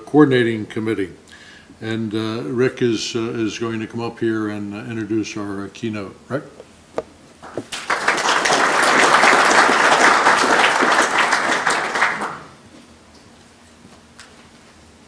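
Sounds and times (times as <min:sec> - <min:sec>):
audience applauding: 0:07.4 - 0:12.6.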